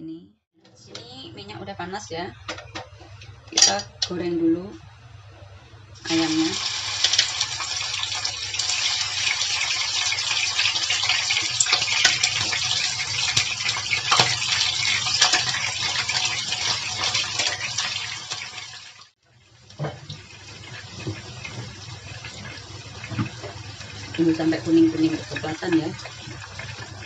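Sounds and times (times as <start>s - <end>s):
chicken sizzling in hot oil: 6.0s - 27.0s.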